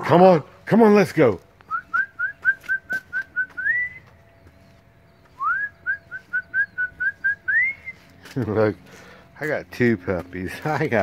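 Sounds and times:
person whistling: 1.7s - 4.1s, 5.4s - 8.1s.

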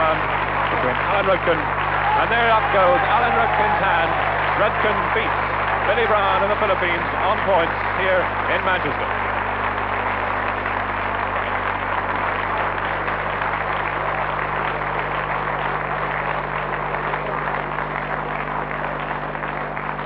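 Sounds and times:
crowd applauding: 0.0s - 20.0s.

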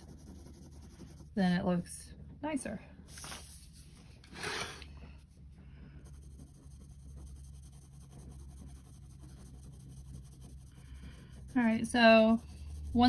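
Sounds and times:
pencil shading on paper: 0.0s - 1.6s, 5.9s - 13.0s
paper sheet sliding across desk: 3.1s - 4.9s.

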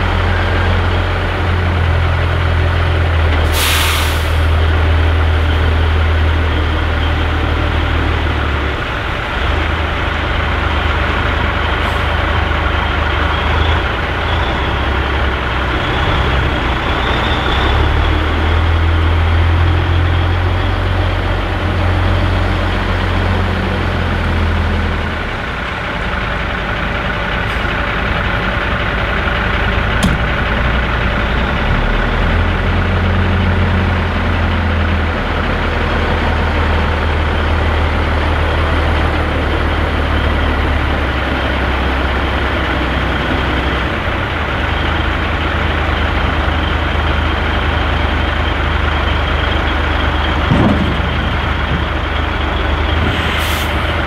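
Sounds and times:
diesel truck engine droning: 0.0s - 54.0s
road and cab noise: 0.0s - 54.0s
sharp click: 30.0s - 30.3s.

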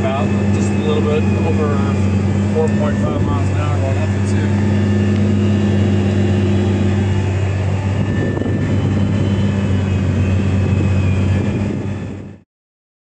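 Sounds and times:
tractor engine under load: 0.0s - 11.8s.

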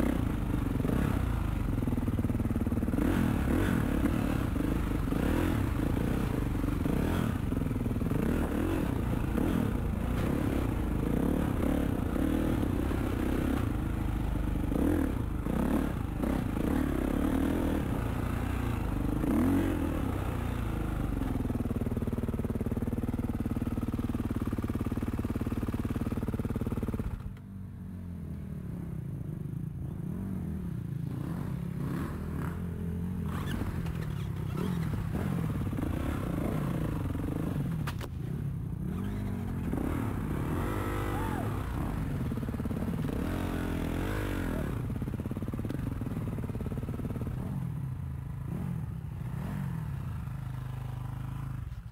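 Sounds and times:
dirt bike engine revving: 0.0s - 21.2s, 38.9s - 45.6s
bike rattling over rough ground: 33.3s - 40.4s.

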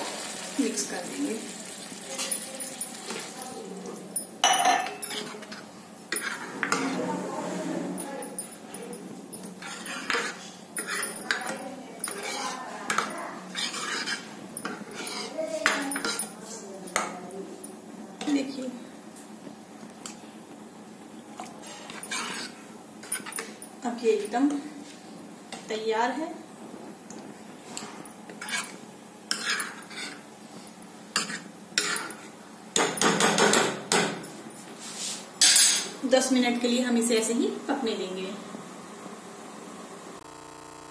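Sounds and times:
metal ladle scraping a pan: 5.1s - 7.9s, 9.6s - 16.3s, 21.6s - 23.6s, 27.8s - 30.2s, 31.2s - 32.3s.

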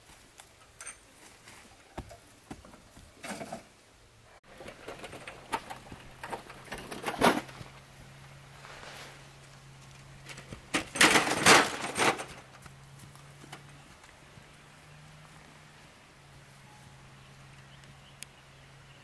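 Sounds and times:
knocks and clatters: 4.4s - 7.8s, 10.2s - 13.8s
scraping clatter: 4.4s - 7.9s, 10.2s - 12.6s.

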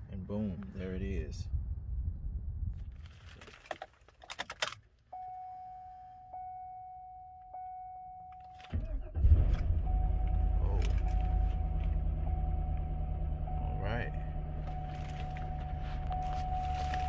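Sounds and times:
dashboard warning chime: 5.1s - 8.8s, 9.8s - 17.0s
car engine cranking and idling: 7.5s - 17.0s.

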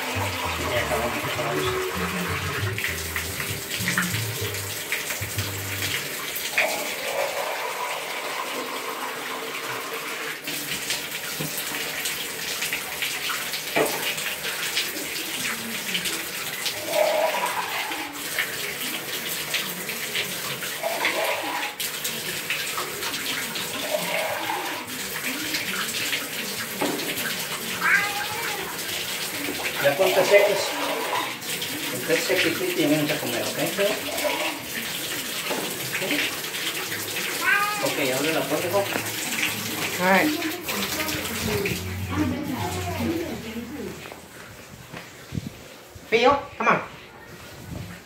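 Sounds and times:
bathtub tap running: 0.0s - 7.1s, 9.5s - 15.2s, 18.2s - 43.4s
water splashing in tub: 0.0s - 46.1s.

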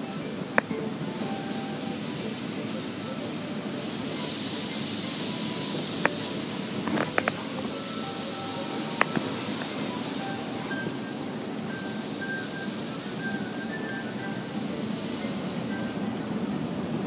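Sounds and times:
car wash spraying water: 0.0s - 16.4s.

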